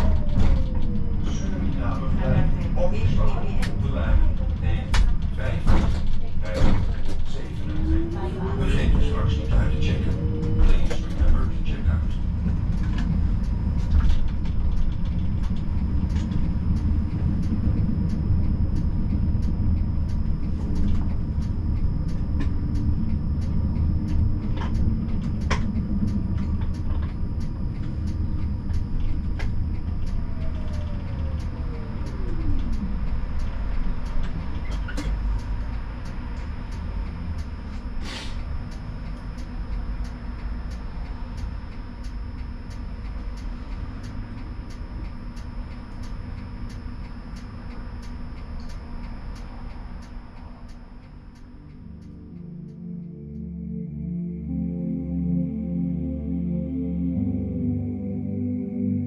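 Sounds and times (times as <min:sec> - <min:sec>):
tram wheels rumbling: 0:00.0 - 0:53.0
whine gliding down in pitch: 0:07.3 - 0:35.0, 0:51.5 - 0:59.0
faint regular ticking: 0:08.8 - 0:53.8.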